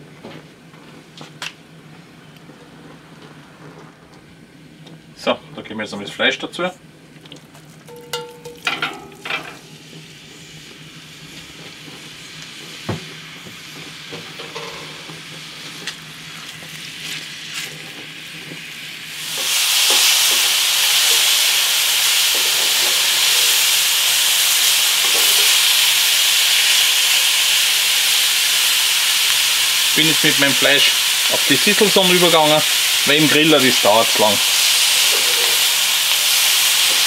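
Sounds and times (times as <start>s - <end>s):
meat sizzling in a skillet: 7.7s - 37.0s.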